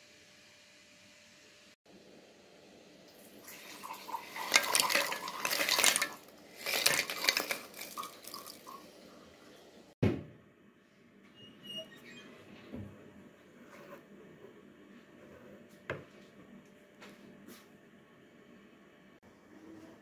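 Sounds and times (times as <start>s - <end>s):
biscuits clattering in metal bowl: 3.6s - 8.7s
thump: 10.0s - 10.4s.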